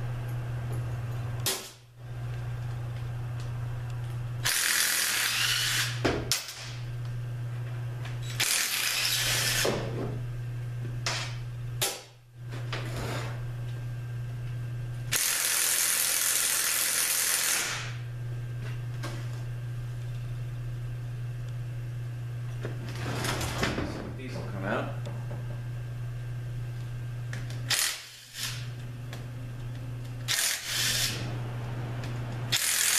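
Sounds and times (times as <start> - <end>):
steady low hum: 0.0 - 32.9
power ratchet spinning bolts: 4.4 - 6.0, 8.3 - 9.6, 15.1 - 17.8, 27.7 - 28.6, 30.3 - 31.2, 32.5 - 32.9.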